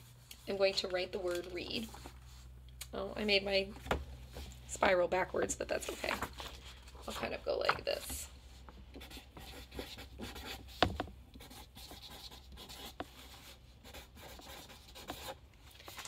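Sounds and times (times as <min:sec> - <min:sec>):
marker scratching on paper: 0:09.0 - 0:15.4.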